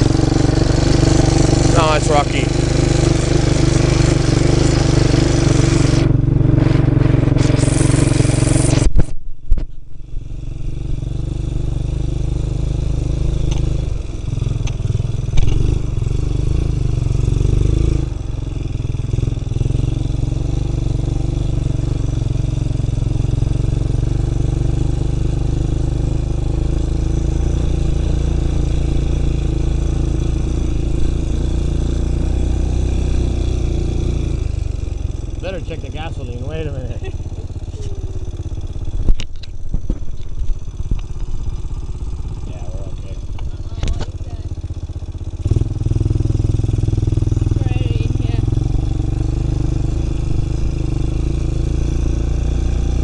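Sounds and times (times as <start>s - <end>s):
atv engine running: 0.0s - 53.0s.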